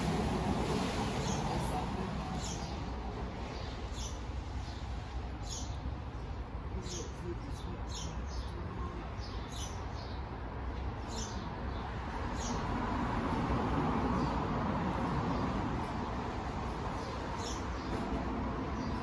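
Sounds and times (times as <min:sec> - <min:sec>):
outdoor background noise: 0:00.0 - 0:19.0.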